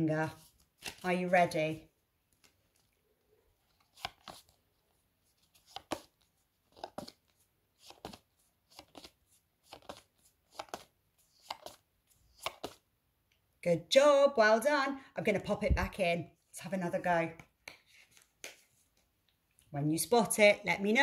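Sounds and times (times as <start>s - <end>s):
cards flicking: 7.8s - 12.8s.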